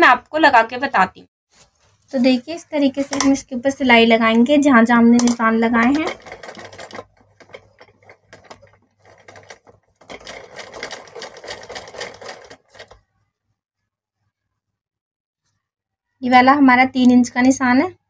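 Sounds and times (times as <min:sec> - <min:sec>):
sewing machine stitching: 0:05.2 - 0:13.1.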